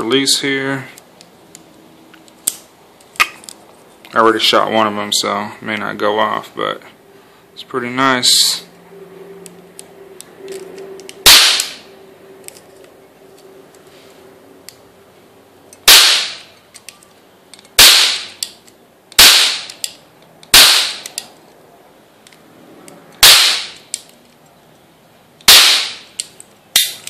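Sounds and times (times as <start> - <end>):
cap gun bangs: 11.3 - 11.8, 15.9 - 16.4, 17.8 - 18.3, 19.2 - 19.7, 23.2 - 23.8, 25.5 - 26.0.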